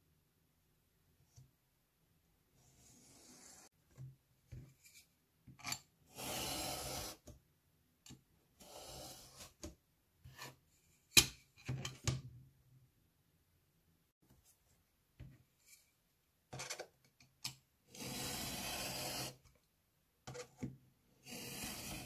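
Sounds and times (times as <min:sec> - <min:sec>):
knife scraping: 0:21.2 - 0:22.0.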